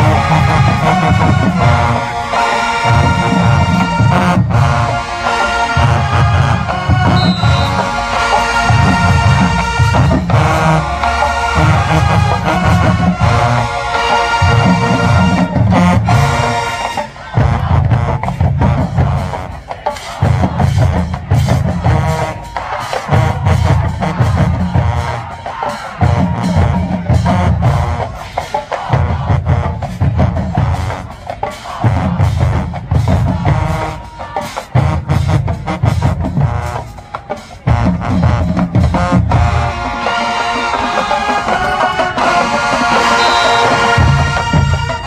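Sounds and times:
marching band playing: 0.0s - 45.0s
bass drum beat: 5.8s - 13.8s, 17.3s - 28.2s, 28.8s - 31.0s, 31.6s - 39.8s.

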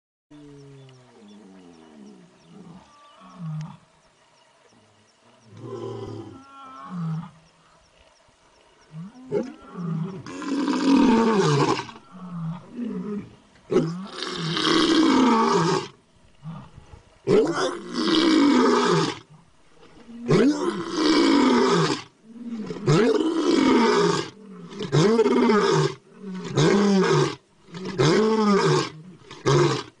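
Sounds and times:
tiger roaring: 9.0s - 29.9s.

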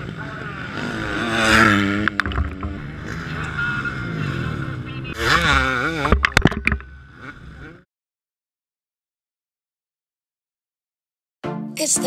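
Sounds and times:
motocross bikes revving past: 0.0s - 7.8s.

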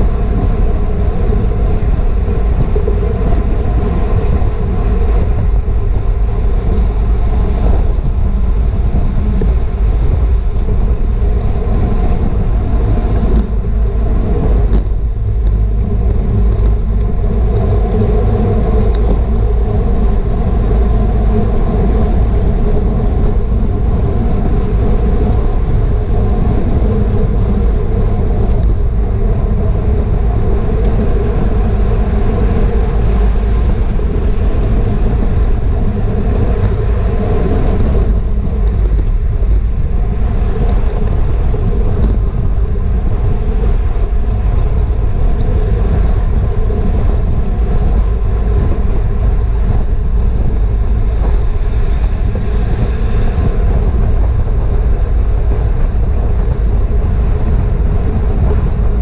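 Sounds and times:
wind rumbling on microphone: 0.0s - 59.0s
faint ticks: 14.7s - 19.5s.

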